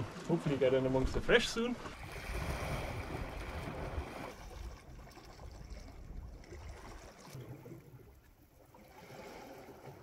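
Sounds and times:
wind rumbling on microphone: 1.0s - 7.6s.

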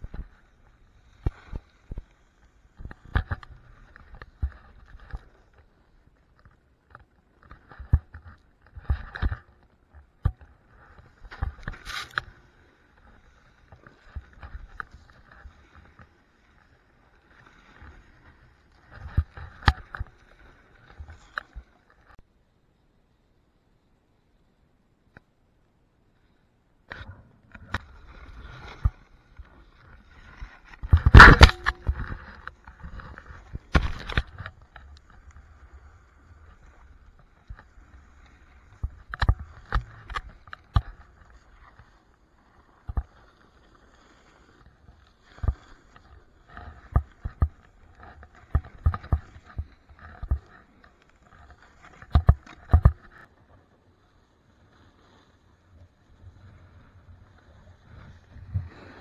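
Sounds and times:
clicks and knocks on camera: 30.7s - 34.8s, 38.8s - 40.9s, 48.4s - 50.5s, 52.0s - 53.1s
snowboard carving through snow: 51.4s - 59.0s.

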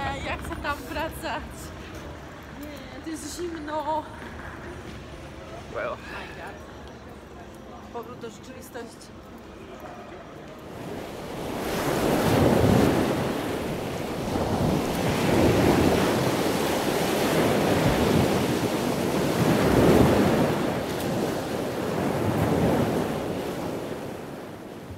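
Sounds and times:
sea: 9.2s - 24.9s
wind on microphone: 10.7s - 24.9s.

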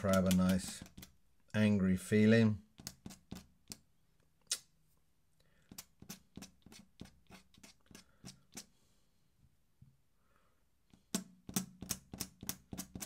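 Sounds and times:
pen scratching on paper: 2.8s - 3.8s, 5.7s - 8.7s.

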